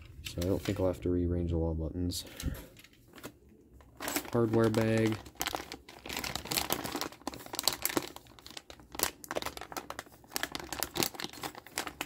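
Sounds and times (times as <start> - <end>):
plastic bag crinkling: 3.1 - 12.0.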